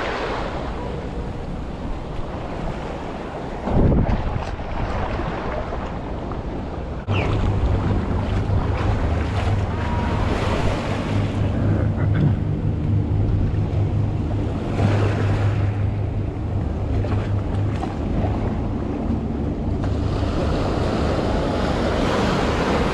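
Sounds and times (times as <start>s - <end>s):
wind on microphone: 0.0s - 22.9s.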